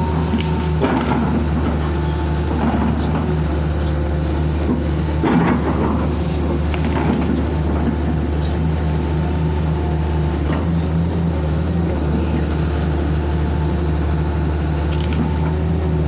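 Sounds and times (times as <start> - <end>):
diesel engine running: 0.0 - 16.0
crackles and knocks: 4.4 - 8.5.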